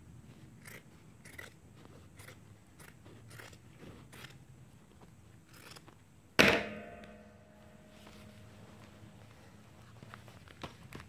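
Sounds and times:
scissors snipping fabric: 0:00.4 - 0:04.4
loud sharp knock: 0:06.4 - 0:08.2.

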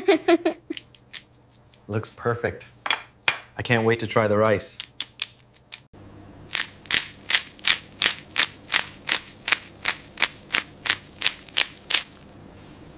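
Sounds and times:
low steady hum: 0:06.0 - 0:12.9.

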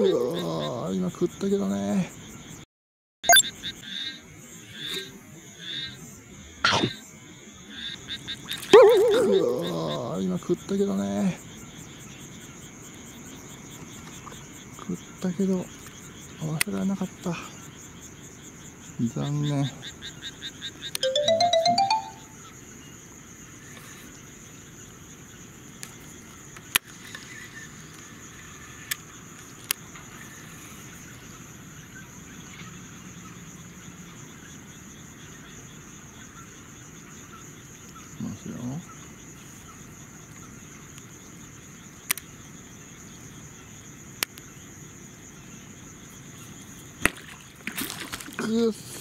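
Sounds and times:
crickets chirping: 0:00.0 - 0:02.7, 0:03.3 - 0:49.0
night insects chorus: 0:00.0 - 0:02.7, 0:03.4 - 0:49.0
electronic transition tones: 0:03.2 - 0:03.4.

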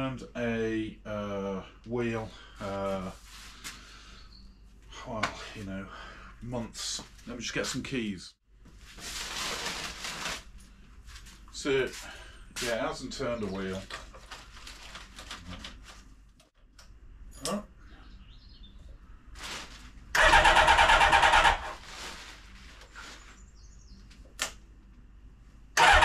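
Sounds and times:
motorcycle engine cranking: 0:20.2 - 0:21.8, 0:25.8 - 0:26.0.

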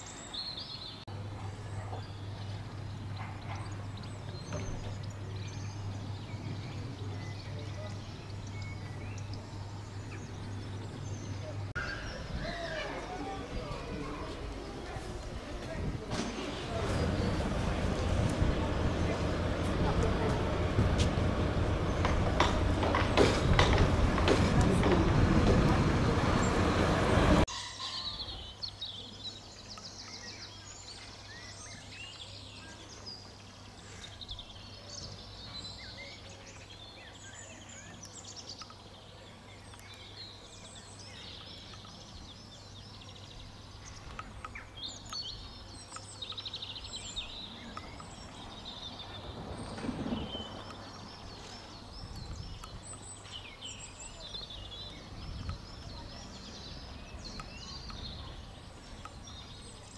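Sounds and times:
songbirds chirping and trilling: 0:00.0 - 0:59.9.

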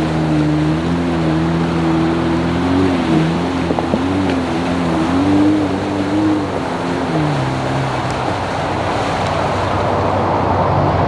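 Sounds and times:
engine pulling through mud: 0:00.0 - 0:11.0
tires churning mud and water: 0:00.0 - 0:11.0.

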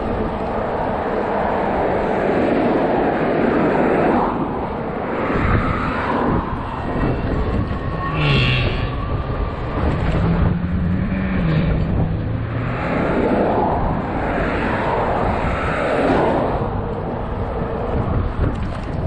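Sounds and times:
road noise rumble: 0:00.0 - 0:19.0
wind on microphone: 0:00.0 - 0:19.0
low hum changing pitch: 0:06.5 - 0:13.9.

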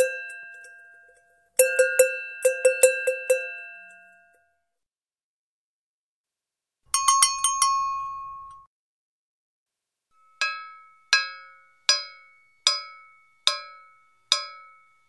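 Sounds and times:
cowbell strikes: 0:00.0 - 0:04.4, 0:06.9 - 0:08.7, 0:10.2 - 0:14.9.

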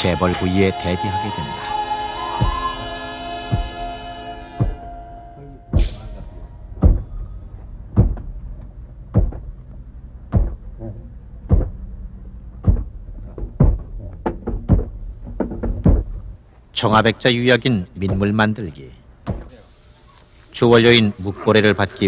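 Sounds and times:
heavy pounding thuds on stone: 0:06.8 - 0:07.1, 0:07.9 - 0:08.4, 0:09.1 - 0:09.5, 0:10.3 - 0:10.6, 0:11.4 - 0:11.8, 0:12.6 - 0:16.2, 0:18.0 - 0:18.3, 0:19.2 - 0:19.5.

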